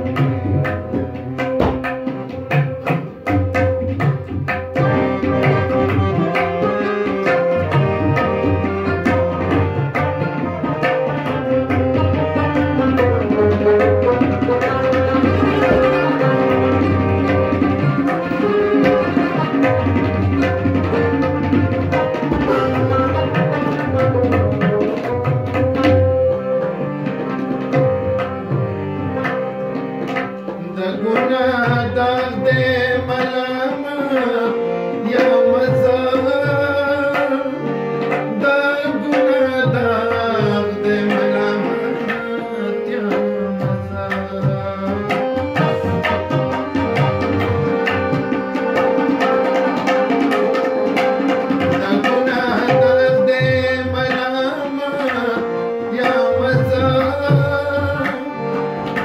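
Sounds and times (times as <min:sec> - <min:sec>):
harmonium drone: 0:00.0 - 0:59.0
tabla drum rhythm: 0:00.0 - 0:59.0
man singing: 0:22.1 - 0:25.1, 0:30.6 - 0:47.5, 0:48.1 - 0:59.0.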